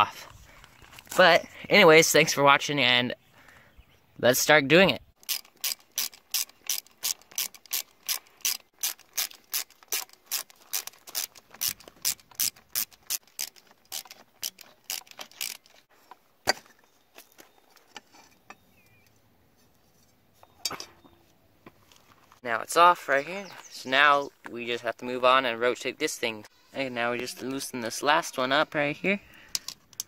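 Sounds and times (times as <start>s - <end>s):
socket ratchet clicking: 5.2s - 15.7s.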